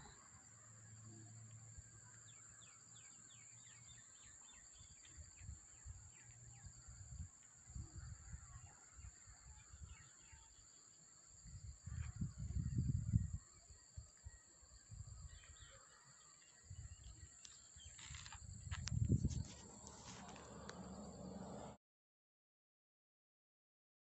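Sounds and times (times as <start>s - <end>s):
distant bird chirps: 0.0s - 12.2s, 13.1s - 21.8s
wind rumbling on microphone: 4.7s - 10.2s, 11.3s - 15.6s, 16.6s - 21.8s.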